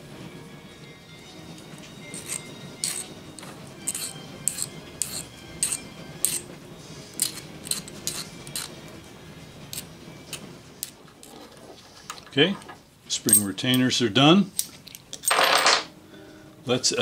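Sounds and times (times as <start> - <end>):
file rasping on metal: 2.1 - 3.1, 3.8 - 6.5, 7.1 - 8.8.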